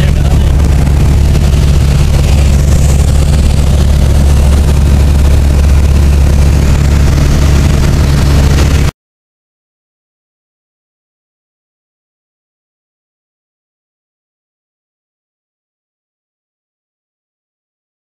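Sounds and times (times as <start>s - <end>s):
airplane engine and propeller droning: 0.0s - 8.9s.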